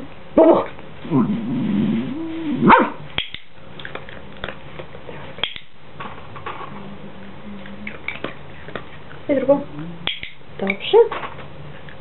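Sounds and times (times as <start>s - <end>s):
dog whining: 0.5s - 3.0s.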